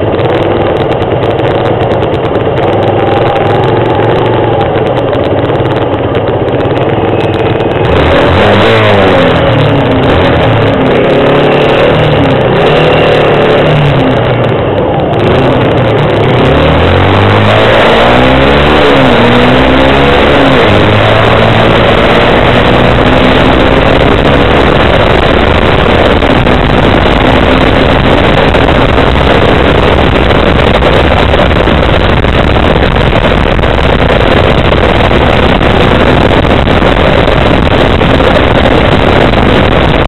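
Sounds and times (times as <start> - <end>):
motorcycle engine running: 0.0 - 40.0
wind and road rush: 0.0 - 40.0.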